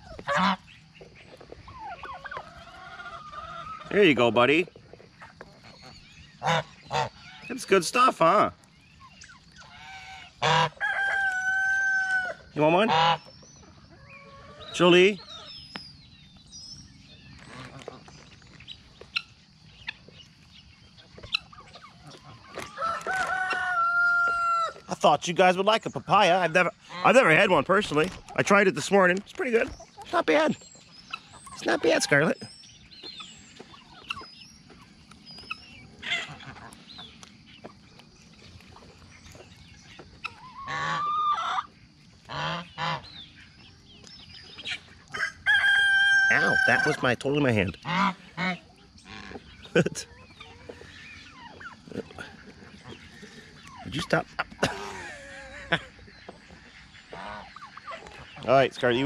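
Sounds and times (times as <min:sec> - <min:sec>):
geese honking: 0:00.0 - 0:15.7, 0:17.2 - 0:20.2, 0:21.0 - 0:39.1, 0:39.8 - 0:59.0
chickens clucking: 0:00.0 - 0:59.0
faint high chirping of poultry: 0:00.0 - 0:59.0
rooster crowing: 0:10.5 - 0:12.5, 0:22.6 - 0:24.8, 0:45.1 - 0:47.1.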